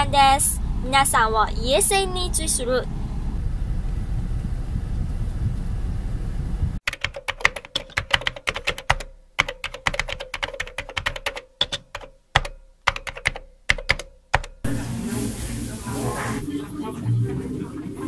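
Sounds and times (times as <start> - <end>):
low rumble inside car: 0.0 - 6.8
keyboard typing clicks: 6.9 - 14.6.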